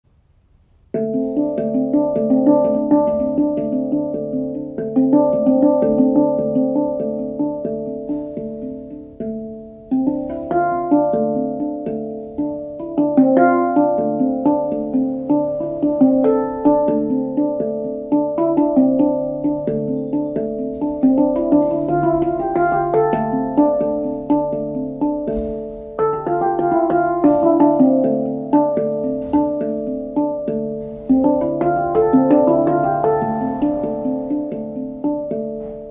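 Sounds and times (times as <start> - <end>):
handpan notes ringing: 0.9 - 35.9
held low tone: 17.4 - 24.3.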